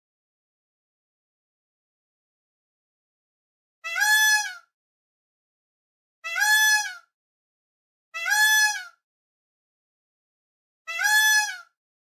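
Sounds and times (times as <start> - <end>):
peacock calling: 10.9 - 11.7.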